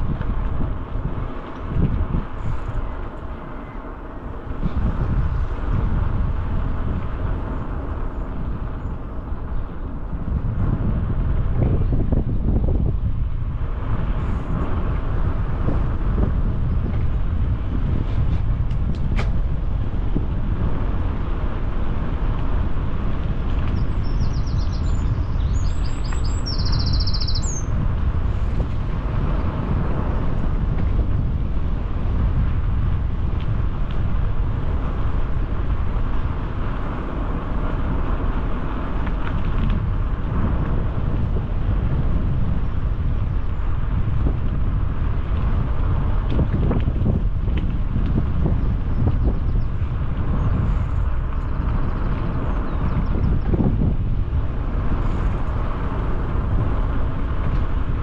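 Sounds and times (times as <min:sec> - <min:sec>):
wind buffeting microphone: 0:00.0 - 0:58.0
bird singing high trills: 0:24.0 - 0:27.7.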